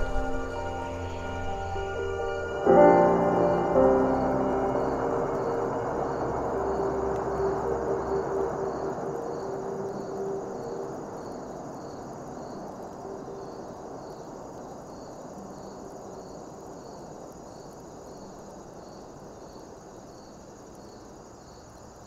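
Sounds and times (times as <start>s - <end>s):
distant city noise: 0.0s - 15.0s
insects chirping: 0.0s - 22.0s.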